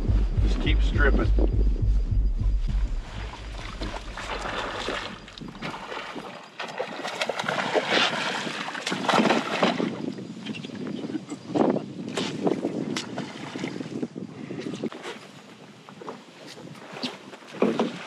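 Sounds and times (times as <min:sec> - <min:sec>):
low pulsing music beat: 0:00.0 - 0:05.6
wind on microphone: 0:00.0 - 0:18.0
water splashing around boat: 0:02.7 - 0:18.0.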